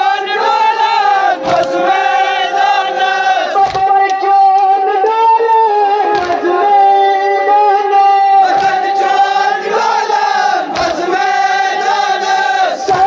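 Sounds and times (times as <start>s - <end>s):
men chanting together: 0.0s - 3.8s, 8.2s - 13.0s.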